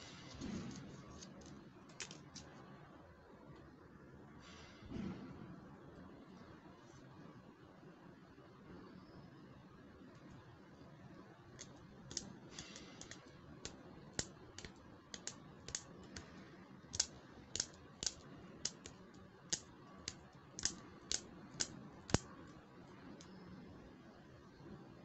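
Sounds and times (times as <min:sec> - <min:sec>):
fingernails clicking on plastic comb: 0:11.6 - 0:16.3, 0:16.9 - 0:22.3.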